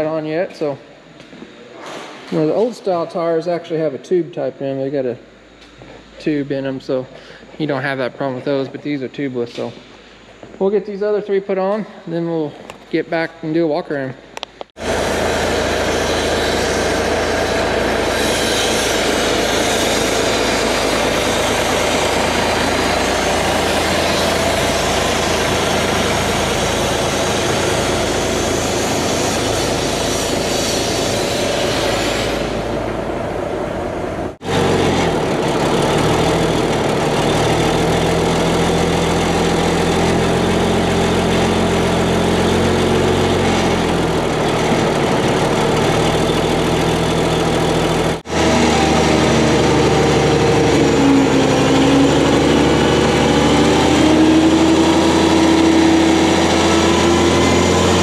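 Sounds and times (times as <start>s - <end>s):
diesel engine idling: 14.8s - 58.0s
diesel truck engine running: 14.8s - 58.0s.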